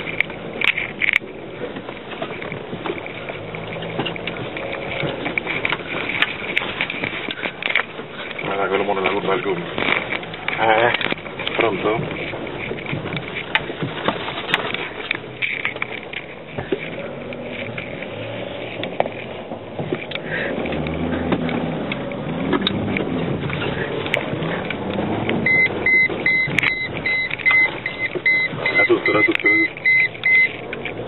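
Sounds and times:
off-road vehicle engine: 0:00.0 - 0:31.0
repeating electronic beep: 0:25.4 - 0:30.5.

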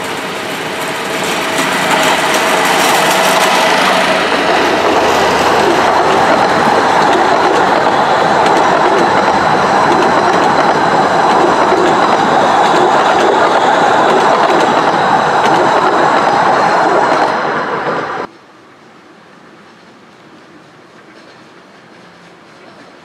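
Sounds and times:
wheels clicking over rail joints: 0:00.0 - 0:16.2
train wheels rumbling on rails: 0:00.0 - 0:18.3, 0:19.7 - 0:23.0.

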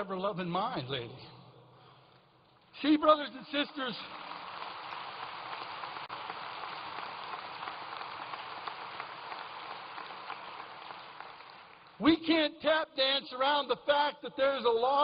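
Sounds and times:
audience applause: 0:03.9 - 0:12.0.

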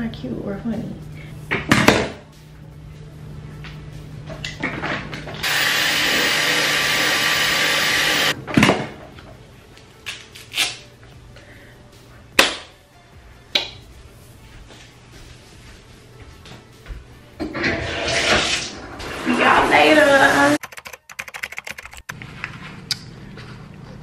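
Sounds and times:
hair dryer running: 0:05.4 - 0:08.4.

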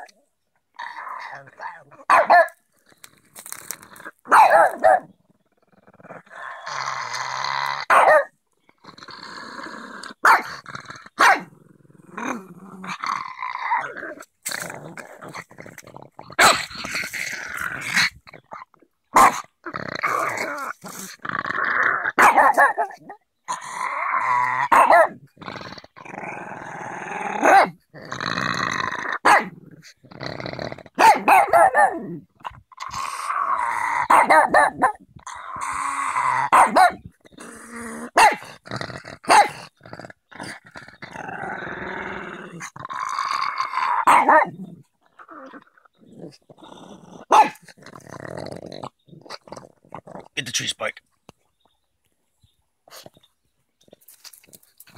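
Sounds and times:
dog growling: 0:00.7 - 0:02.2, 0:02.9 - 0:08.0, 0:08.7 - 0:50.6
dog barking: 0:02.1 - 0:02.6, 0:04.3 - 0:05.1, 0:07.9 - 0:08.3, 0:11.2 - 0:11.5, 0:22.2 - 0:23.0, 0:24.7 - 0:25.2, 0:29.2 - 0:29.5, 0:31.0 - 0:32.0, 0:34.1 - 0:35.0, 0:36.5 - 0:37.0, 0:38.2 - 0:38.4, 0:39.3 - 0:39.6, 0:47.3 - 0:47.6.

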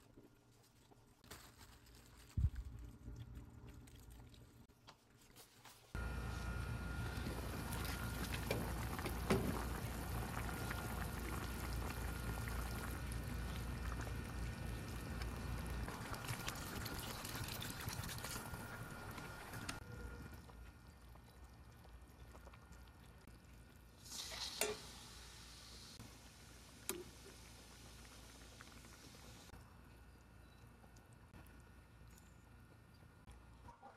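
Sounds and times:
stew bubbling and sizzling: 0:02.3 - 0:33.2
water pouring from bottle: 0:15.9 - 0:18.8.

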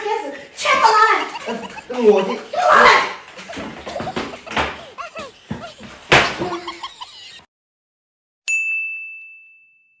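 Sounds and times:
short vocal cries: 0:00.9 - 0:07.4
bright ding: 0:08.5 - 0:10.0.

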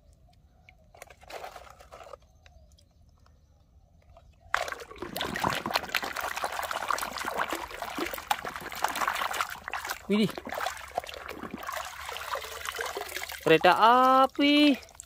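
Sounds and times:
water splashing and sloshing: 0:04.1 - 0:15.0.

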